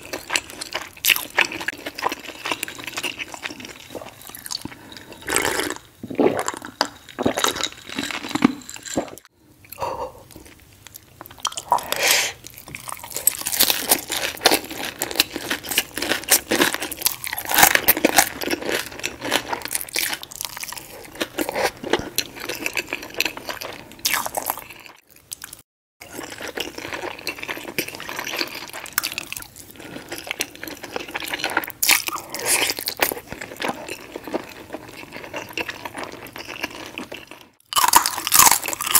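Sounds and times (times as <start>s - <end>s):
chewing crispy food: 0.0s - 38.9s
mouth sounds: 9.7s - 10.4s.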